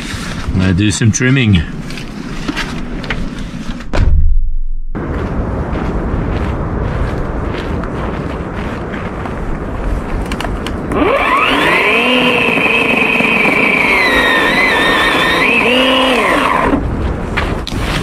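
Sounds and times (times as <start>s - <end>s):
battery chainsaw cutting branches: 10.9s - 16.8s.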